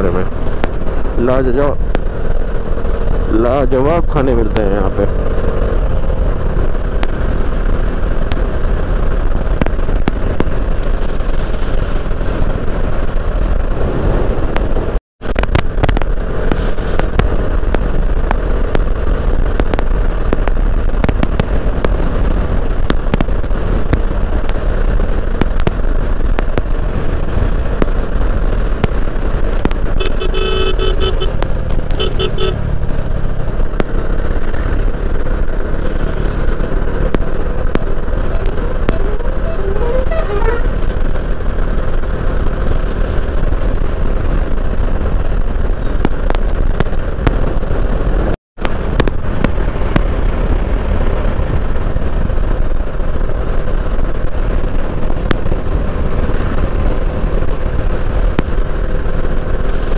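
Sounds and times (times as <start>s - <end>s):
motorcycle engine running: 0.0s - 59.9s
wind noise on microphone: 5.5s - 59.9s
vehicle horn honking: 30.0s - 32.6s, 38.4s - 40.8s.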